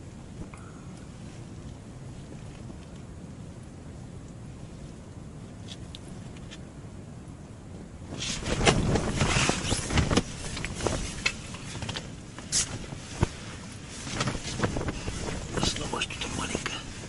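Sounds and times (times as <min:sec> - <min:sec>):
rustling of gear: 0:08.1 - 0:17.0.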